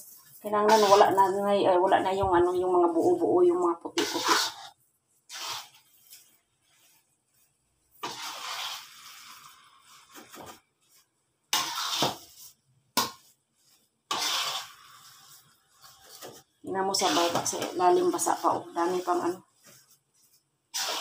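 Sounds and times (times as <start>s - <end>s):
metal spatula scraping a pan: 0.0s - 1.4s, 3.9s - 7.0s, 8.0s - 10.5s, 11.5s - 12.6s, 13.7s - 19.9s, 20.7s - 21.0s.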